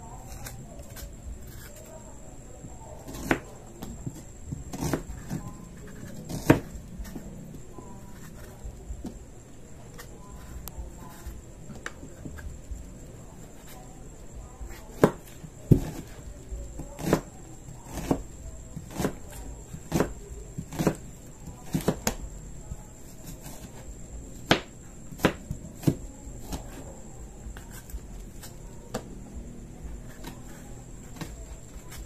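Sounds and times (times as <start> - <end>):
knife chopping on cutting board: 3.1 - 7.2, 14.9 - 16.2, 17.0 - 17.3, 17.9 - 18.2, 19.9 - 21.0, 24.4 - 26.8.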